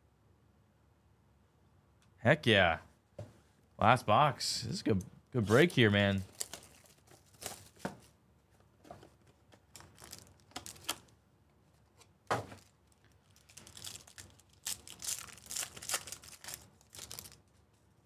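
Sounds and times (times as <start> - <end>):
foil wrapper crinkling: 5.5 - 7.9, 9.7 - 11.1, 12.5 - 17.5.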